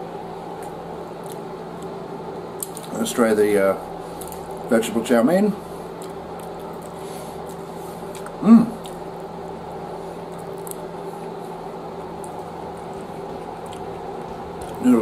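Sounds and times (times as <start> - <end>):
low room hum: 0.0 - 15.0
man chewing noodles: 0.4 - 2.9, 5.6 - 15.0
man humming mm: 8.3 - 8.9.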